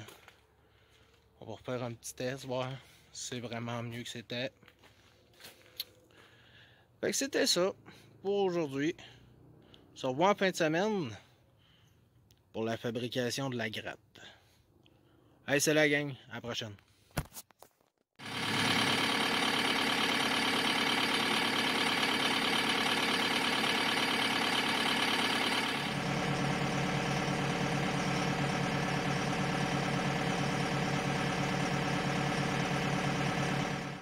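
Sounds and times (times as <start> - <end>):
tractor diesel engine idling: 18.2 - 34.0.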